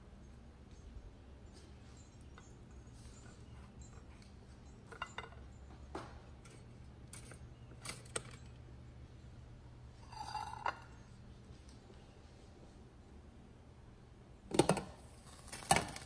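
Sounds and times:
steady low hum: 0.0 - 15.6
spatula and plates clinking: 2.0 - 8.5.

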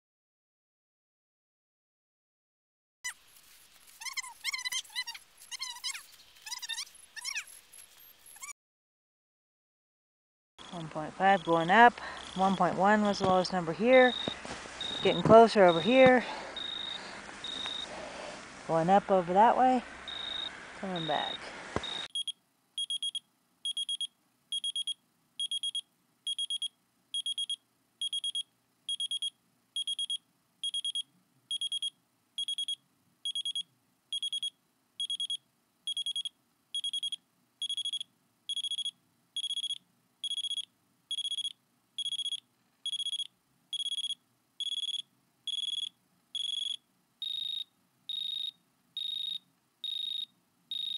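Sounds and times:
avalanche beacon beeping: 10.6 - 12.5, 14.0 - 17.9, 20.1 - 50.9.

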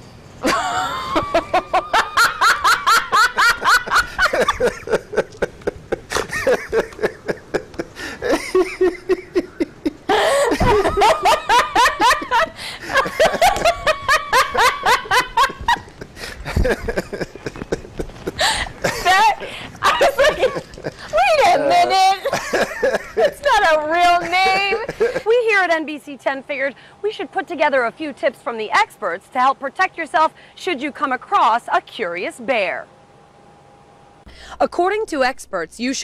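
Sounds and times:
woman laughing: 0.4 - 25.6.

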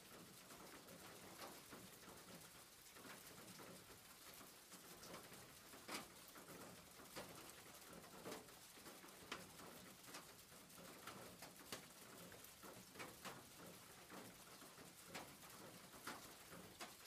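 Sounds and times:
rain on a roof: 0.0 - 17.0
raindrops tapping: 0.0 - 17.0.

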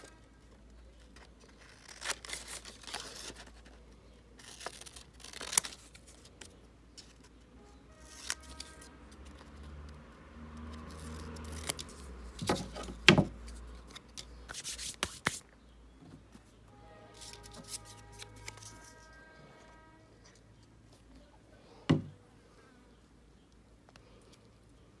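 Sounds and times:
card rustling: 8.0 - 9.6, 10.6 - 15.4, 17.2 - 19.2
faint background music: 15.6 - 23.5.

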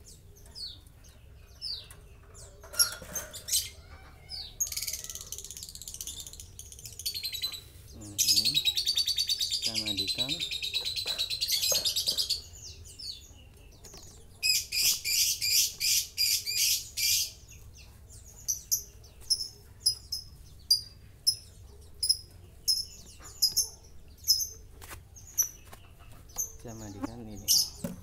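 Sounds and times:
bird high chirps: 0.0 - 28.0.

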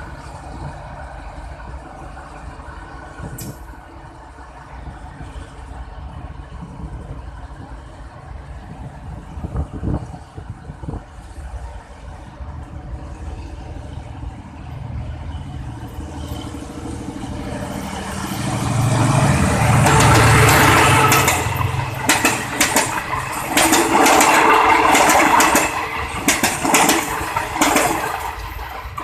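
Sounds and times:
diesel locomotive engine rumble: 0.0 - 29.0
freight train passing: 0.0 - 29.0
train wheels clicking over rail joints: 0.1 - 4.6, 15.6 - 29.0.

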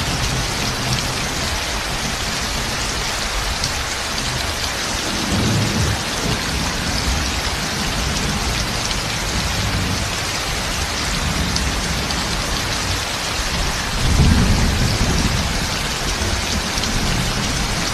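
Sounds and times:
heavy rain pouring: 0.0 - 17.9
thunder rolling: 13.5 - 17.9.

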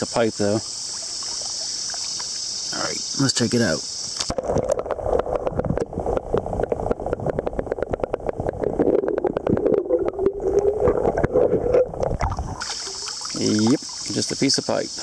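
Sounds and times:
insect chirping: 0.0 - 15.0
muffled underwater river water: 0.0 - 15.0
crackling clicks and bubbling: 4.1 - 14.5.

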